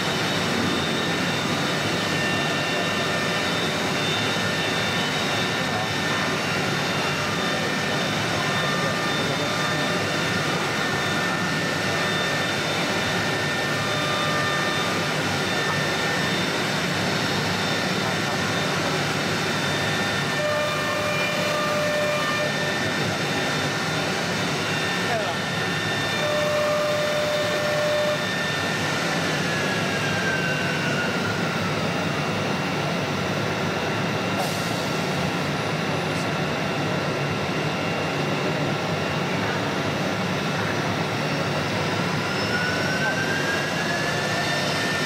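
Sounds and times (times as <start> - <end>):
wood router cutting wood: 0.0 - 31.6.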